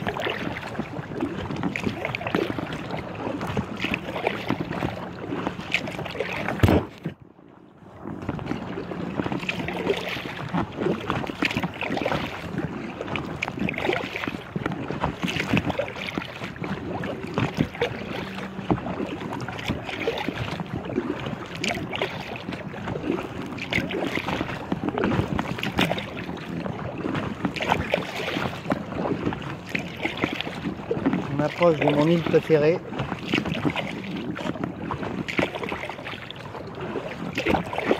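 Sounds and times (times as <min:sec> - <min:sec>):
water slapping kayak hull: 0:00.0 - 0:37.9
wind buffeting microphone: 0:00.0 - 0:37.9.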